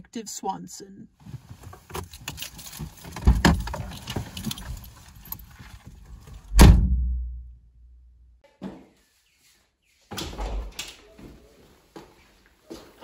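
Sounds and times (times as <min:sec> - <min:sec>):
clothes rustling: 0:01.2 - 0:06.5
car keys jangling: 0:01.9 - 0:05.9
car door slamming shut: 0:06.5 - 0:07.1.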